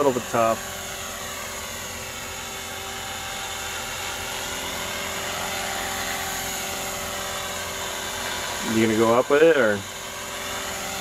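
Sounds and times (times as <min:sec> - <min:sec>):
rc helicopter motor whine: 0:00.0 - 0:11.0.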